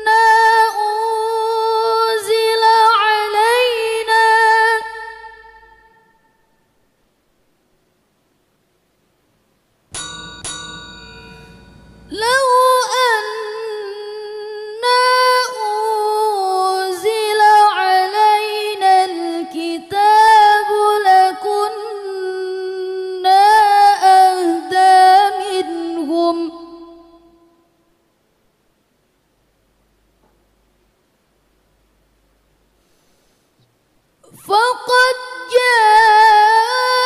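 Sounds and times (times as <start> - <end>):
woman reciting melodically: 0.0 - 6.0, 12.1 - 27.4, 34.2 - 37.0
short ringing strikes: 9.9 - 12.3.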